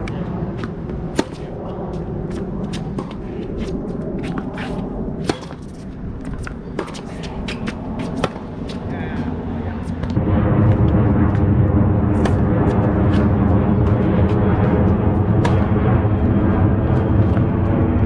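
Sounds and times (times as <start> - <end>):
tennis rackets hitting ball: 0.0 - 10.2, 12.2 - 14.4, 15.4 - 15.8.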